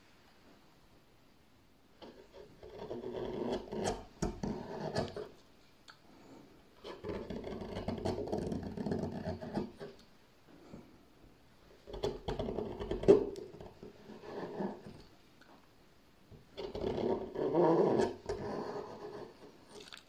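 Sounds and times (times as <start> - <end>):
gouge scraping through wood: 2.0 - 5.4, 11.8 - 15.0, 16.6 - 19.7.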